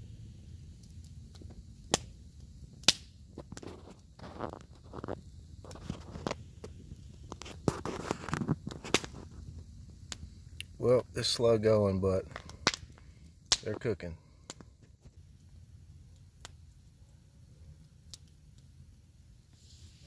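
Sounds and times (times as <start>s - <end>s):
campfire crackling and popping: 0.0s - 20.0s.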